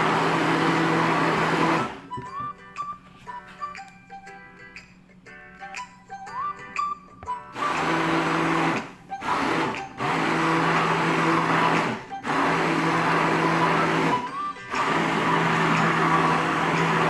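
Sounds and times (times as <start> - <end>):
immersion blender whirring: 0.0 - 2.3, 7.5 - 17.0
music with plucked notes: 0.7 - 17.0.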